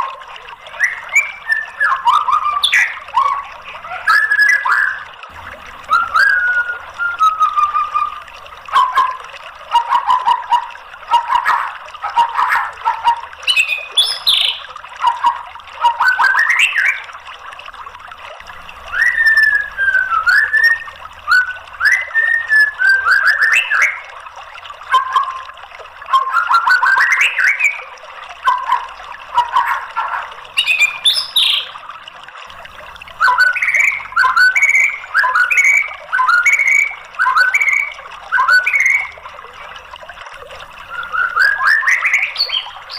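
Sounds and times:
bird singing whistled phrases: 0.8s - 5.1s, 5.9s - 17.1s, 18.9s - 24.1s, 26.1s - 28.8s, 29.4s - 31.8s, 33.2s - 39.2s, 40.8s - 42.9s.

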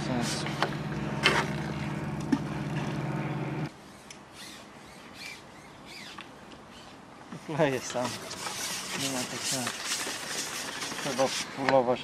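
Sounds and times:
engine humming: 0.0s - 3.8s.

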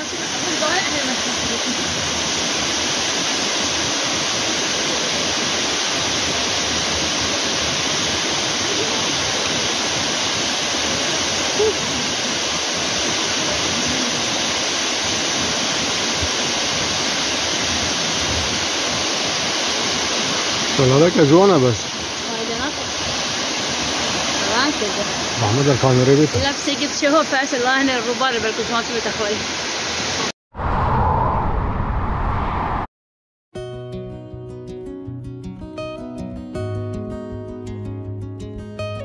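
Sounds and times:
rush of falling water: 0.0s - 30.3s.

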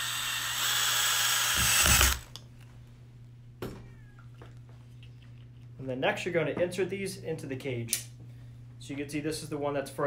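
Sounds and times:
cordless drill driving screw: 0.0s - 2.4s.

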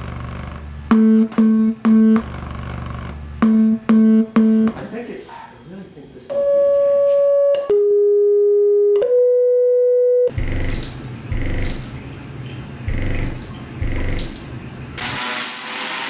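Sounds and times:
steady electronic tones: 0.0s - 5.0s, 6.3s - 12.0s, 12.9s - 14.5s.

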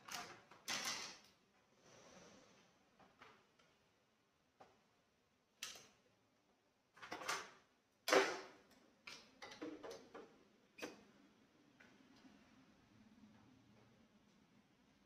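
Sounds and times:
knocks and plastic clatter: 7.0s - 11.0s.

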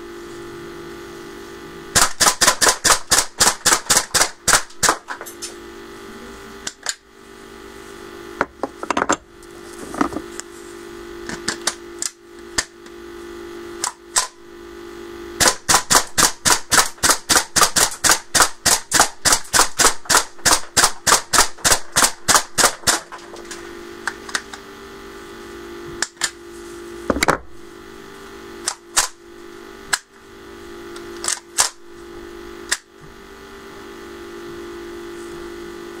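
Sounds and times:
steady low hum: 0.0s - 36.0s
airsoft gun shots: 2.0s - 5.1s, 15.4s - 23.0s.

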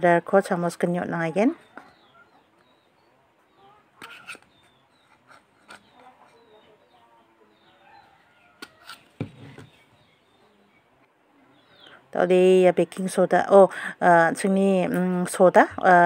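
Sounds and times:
faint bird chirps: 1.6s - 12.1s.

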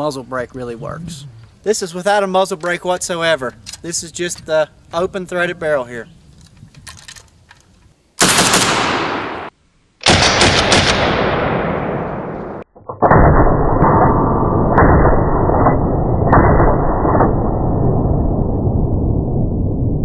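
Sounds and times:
rifle firing rapid shots: 8.2s - 12.4s.

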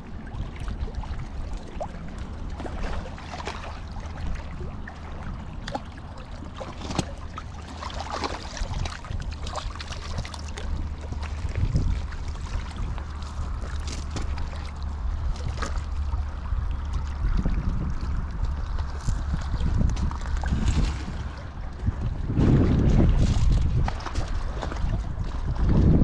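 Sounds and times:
wind rumble on microphone: 0.0s - 26.0s
fish splashing at surface: 5.7s - 16.0s.

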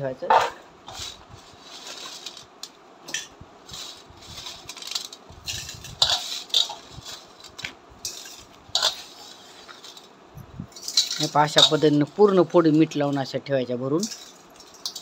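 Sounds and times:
light clinks against metal: 10.7s - 11.9s.

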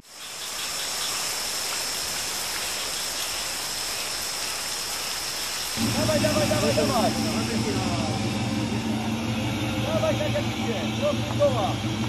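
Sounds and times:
heavy rain: 0.0s - 12.0s
vehicle engine running: 5.8s - 12.0s
voices: 5.8s - 12.0s.

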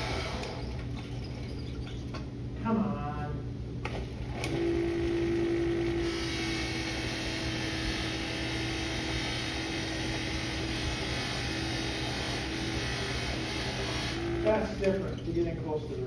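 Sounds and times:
buffing wheel motor hum: 0.0s - 0.9s, 3.9s - 15.0s
clear ringing tone: 4.6s - 6.1s.

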